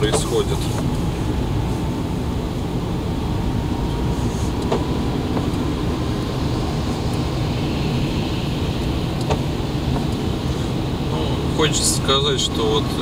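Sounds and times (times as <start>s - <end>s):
car road and engine rumble: 0.0s - 13.0s
tyre hiss on wet road: 4.0s - 4.9s.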